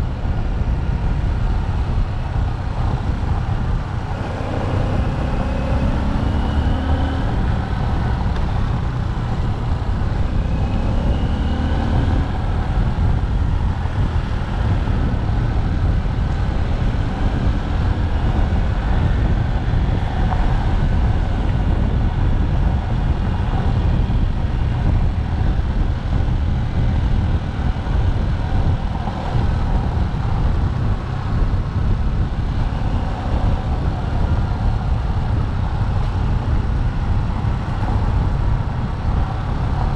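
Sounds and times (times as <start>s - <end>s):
motorcycle engine running: 0.0s - 39.9s
wind rumble on microphone: 0.0s - 39.9s.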